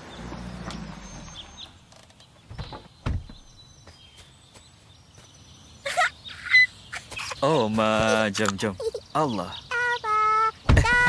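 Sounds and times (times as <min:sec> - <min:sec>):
low car hum: 0:00.0 - 0:03.8, 0:08.0 - 0:11.0.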